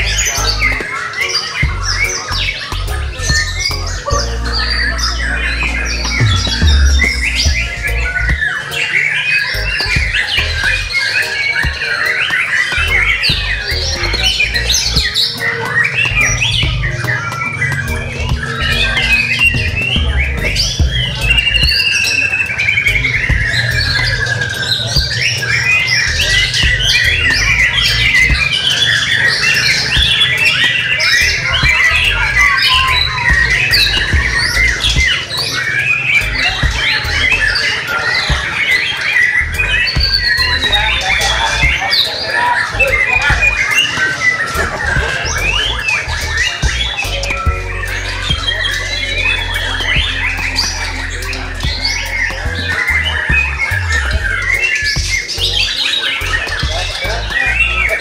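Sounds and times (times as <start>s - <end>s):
songbirds singing chorus: 0.0s - 58.0s
low hum: 5.6s - 8.4s
low rumble: 5.6s - 8.4s.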